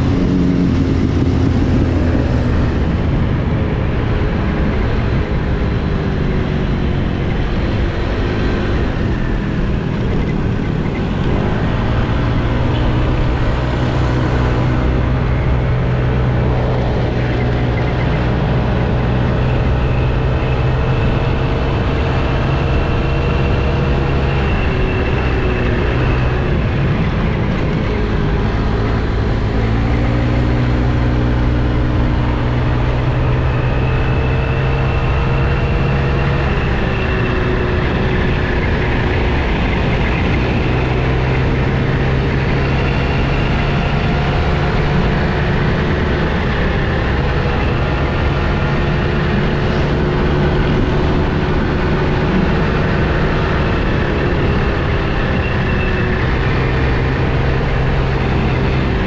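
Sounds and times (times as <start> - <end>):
scooter engine running: 0.0 - 3.8
road noise: 0.0 - 59.0
wind noise on microphone: 0.0 - 59.0.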